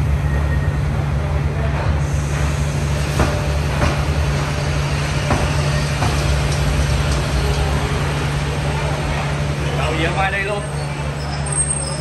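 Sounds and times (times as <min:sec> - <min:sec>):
train rolling past: 0:00.0 - 0:12.0
train wheel clacks: 0:01.7 - 0:09.4.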